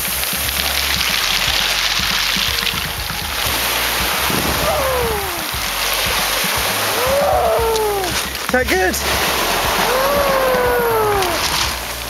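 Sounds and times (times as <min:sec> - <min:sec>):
waves washing over shingle: 0:00.0 - 0:12.0
wind buffeting microphone: 0:00.0 - 0:12.0
short falling cry: 0:04.3 - 0:05.6, 0:06.9 - 0:08.3, 0:09.7 - 0:11.6.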